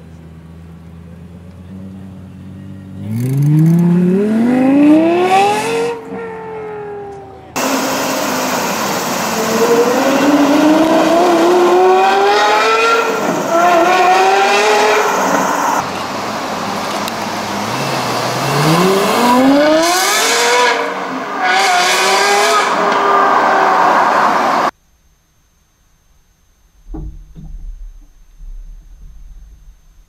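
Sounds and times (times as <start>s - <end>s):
sports car engine revving hard: 3.0s - 6.1s, 7.6s - 15.8s, 17.4s - 24.7s.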